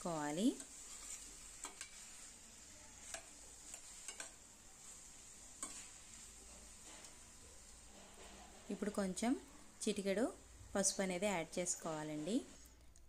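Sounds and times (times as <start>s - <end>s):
metal spoon scraping a pan: 0.0s - 9.0s
vegetables sizzling: 0.0s - 12.8s.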